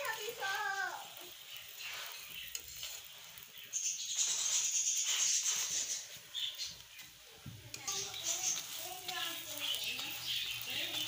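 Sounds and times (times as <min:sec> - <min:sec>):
flatbread sizzling on a griddle: 0:00.0 - 0:11.0.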